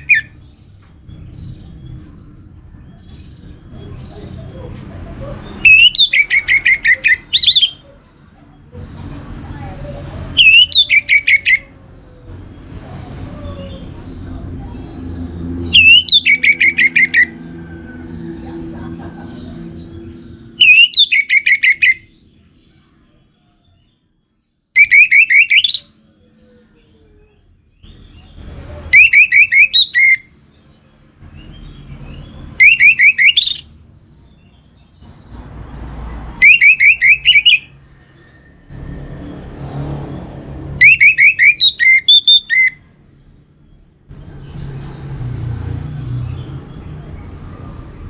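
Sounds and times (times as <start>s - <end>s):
thrush singing whistled notes: 5.6s - 7.8s, 10.4s - 11.6s, 15.6s - 17.4s, 20.5s - 22.2s, 24.8s - 26.0s, 28.9s - 30.3s, 32.6s - 33.8s, 36.4s - 38.5s, 40.8s - 42.9s.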